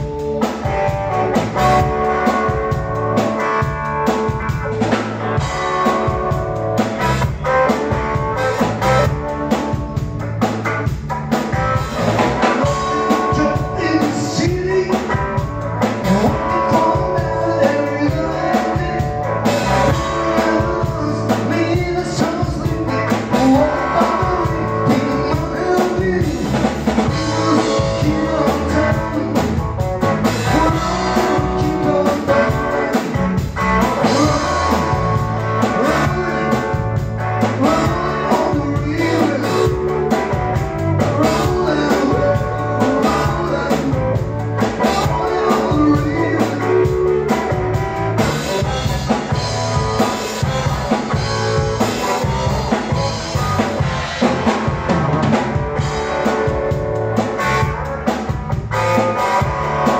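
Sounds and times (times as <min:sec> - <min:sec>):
drum kit: 0:00.0 - 0:59.9
electric guitars: 0:00.0 - 0:59.9
person singing: 0:12.4 - 0:47.6, 0:48.5 - 0:54.3.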